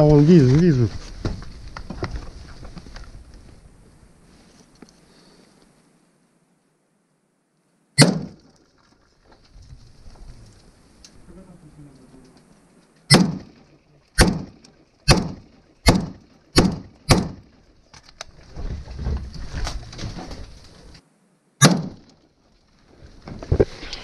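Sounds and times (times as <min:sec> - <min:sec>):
rifle gunshots: 0:08.0 - 0:08.5, 0:13.1 - 0:17.6, 0:21.6 - 0:22.1.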